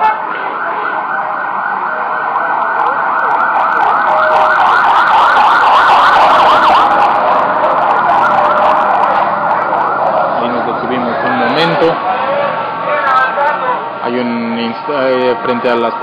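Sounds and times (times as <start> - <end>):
siren yelping: 0.0 - 13.8
street noise: 0.0 - 16.0.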